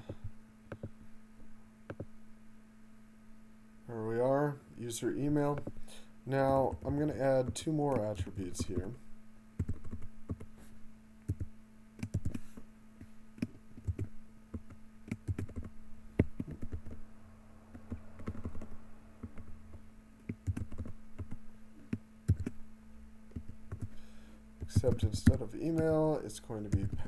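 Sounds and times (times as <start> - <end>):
faint steady hum: 0.0 - 27.0
computer keyboard clicking: 6.6 - 9.0, 9.6 - 10.5, 11.3 - 12.4, 13.4 - 17.0, 17.7 - 19.5, 20.2 - 21.4, 22.3 - 22.6, 23.3 - 23.9, 24.6 - 26.0, 26.7 - 27.0.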